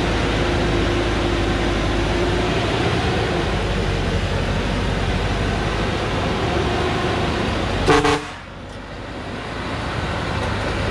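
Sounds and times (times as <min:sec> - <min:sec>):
truck engine running hard: 0:00.0 - 0:10.9
short horn toot: 0:07.9 - 0:08.4.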